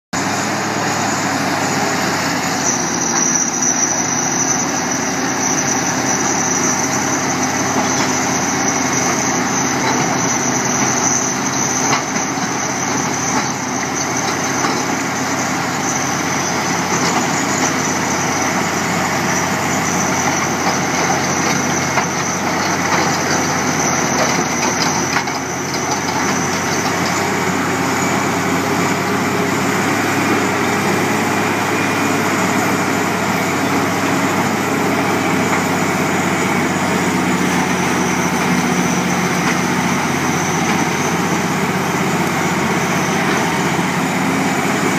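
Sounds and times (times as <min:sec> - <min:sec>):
bulldozer diesel engine under load: 0:00.1 - 0:44.9
thin high whine: 0:00.2 - 0:25.6.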